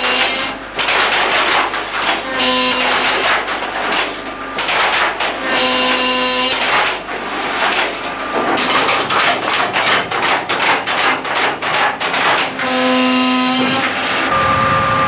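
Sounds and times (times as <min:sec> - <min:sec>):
rapid metallic clacks: 0:00.0 - 0:12.8
motor hum with whine: 0:12.4 - 0:15.0.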